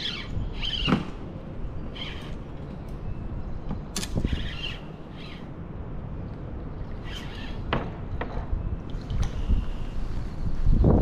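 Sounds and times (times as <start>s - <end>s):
low rumble of wind: 0.0s - 11.0s
sharp click: 3.9s - 4.3s.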